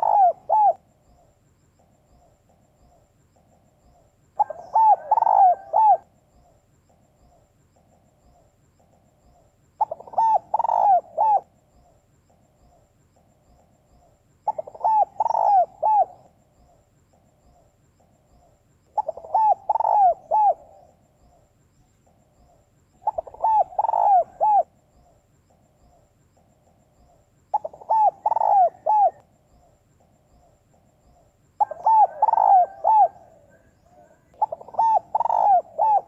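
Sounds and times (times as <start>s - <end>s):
dove cooing: 0.0s - 12.0s, 14.4s - 21.4s, 22.1s - 36.0s.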